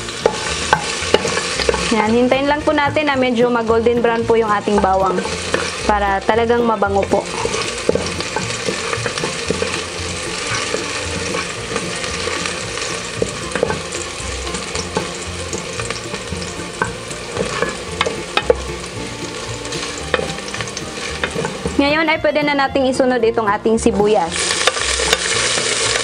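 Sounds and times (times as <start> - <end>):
garlic sizzling in hot oil: 0.0 - 26.0
wooden spatula scraping a pot: 0.1 - 2.1, 4.0 - 21.9.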